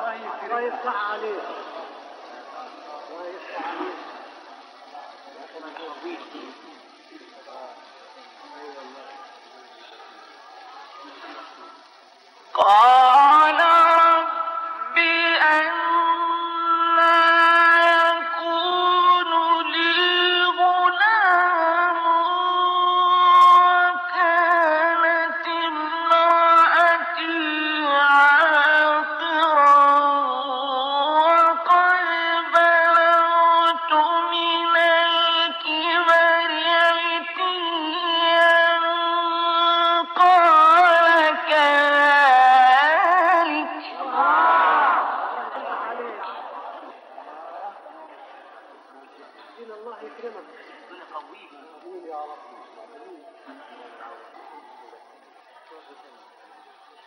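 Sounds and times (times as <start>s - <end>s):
man chanting melodic recitation: 12.4s - 44.3s.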